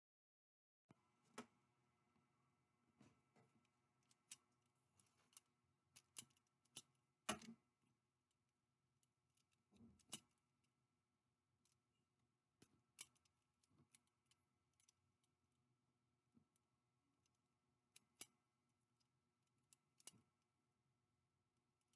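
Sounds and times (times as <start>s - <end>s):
small object clicks and knocks: 3.4s - 7.7s, 9.3s - 10.4s, 12.6s - 15.0s, 17.2s - 18.4s, 19.6s - 20.3s.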